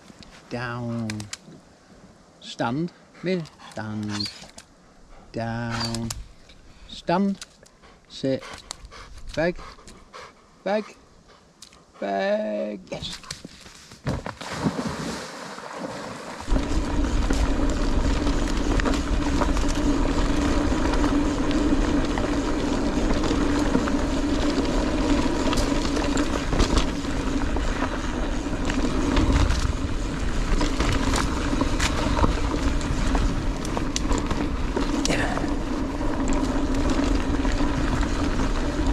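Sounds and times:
tyres rolling on dirt: 13.2s - 38.9s
wind on microphone: 16.5s - 38.9s.

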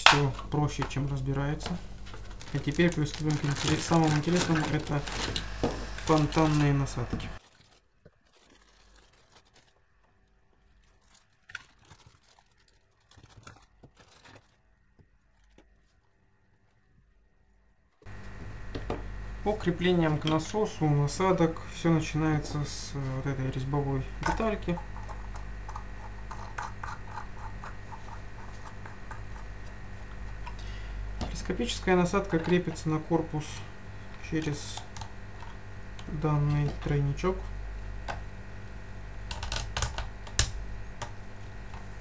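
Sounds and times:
plastic bag crinkling: 2.0s - 16.0s
rustling: 2.0s - 16.9s.

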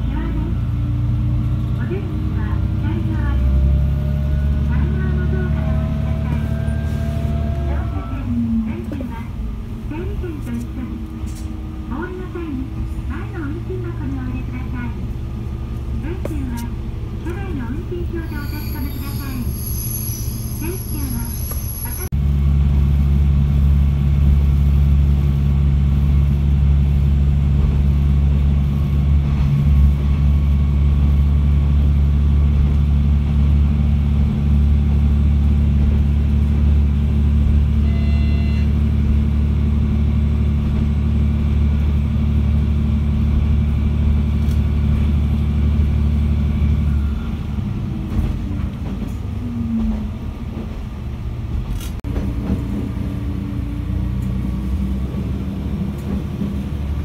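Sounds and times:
train engine drone: 0.0s - 57.0s
train running over rails: 0.0s - 57.0s
brief high tone: 37.8s - 38.7s.

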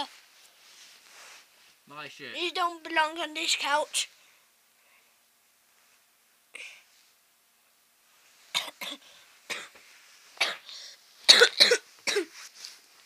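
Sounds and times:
person coughing: 8.6s - 9.8s, 10.4s - 12.3s.

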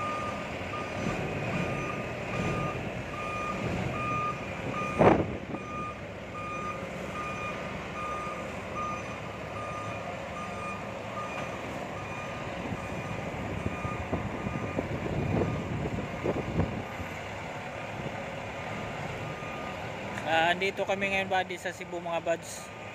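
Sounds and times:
reverse warning beeps: 0.0s - 15.7s, 19.3s - 19.8s
diesel truck engine running: 0.0s - 22.9s.

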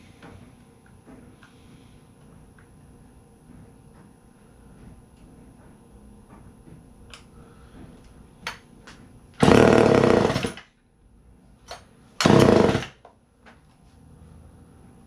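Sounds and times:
chainsaw engine sputtering: 9.4s - 10.6s, 12.2s - 13.0s.

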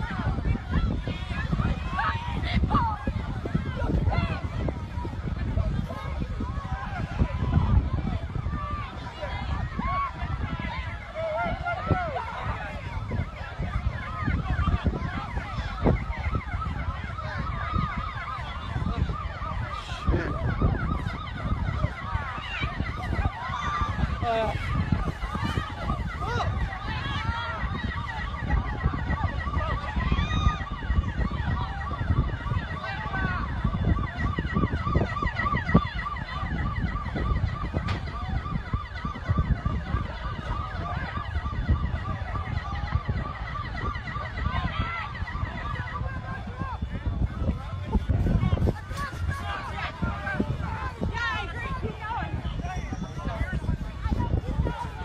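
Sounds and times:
emergency sirens wailing: 0.0s - 55.0s.

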